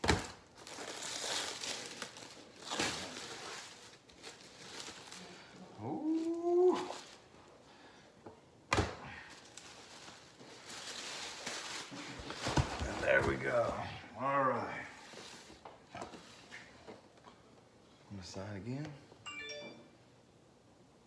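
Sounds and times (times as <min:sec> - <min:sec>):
plastic wrap rustling and crinkling: 0:00.0 - 0:07.5, 0:09.2 - 0:14.0.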